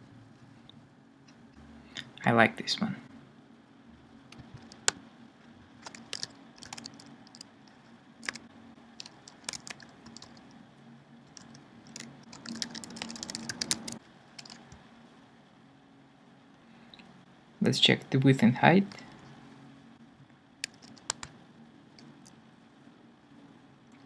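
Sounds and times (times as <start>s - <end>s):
computer keyboard typing: 4.3s - 5.0s, 5.8s - 10.5s, 11.3s - 14.8s, 20.6s - 22.3s.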